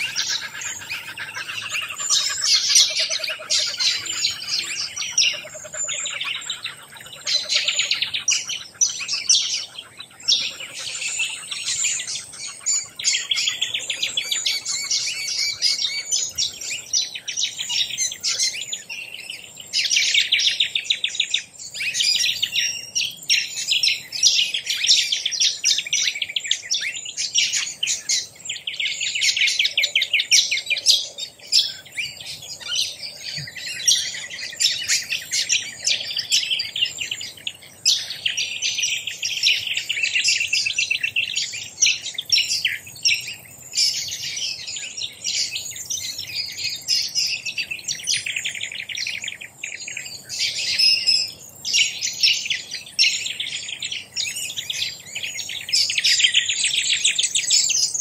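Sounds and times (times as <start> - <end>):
many birds chirping: 0.0 - 58.0.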